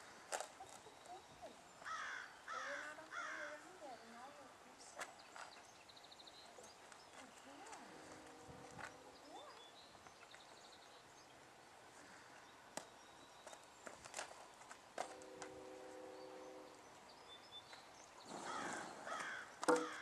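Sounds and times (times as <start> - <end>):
horse hooves on sand: 6.6 - 10.5.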